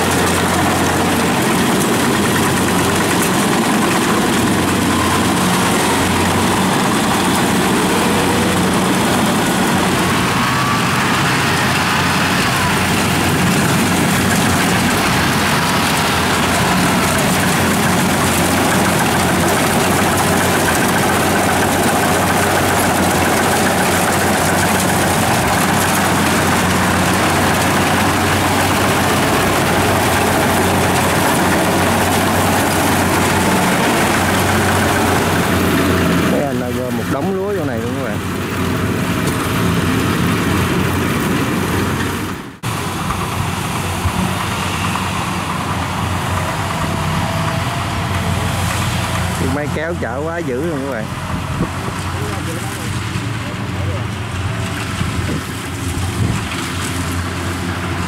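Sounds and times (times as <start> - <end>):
cutting and threshing machinery: 0.0 - 58.0
diesel engine humming: 0.0 - 58.0.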